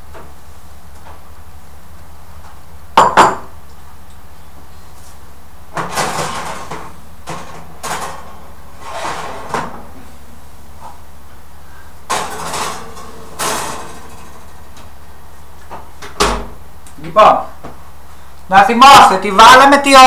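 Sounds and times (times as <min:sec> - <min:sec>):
pans scraping and clattering: 0:05.8 - 0:09.8, 0:12.1 - 0:14.5.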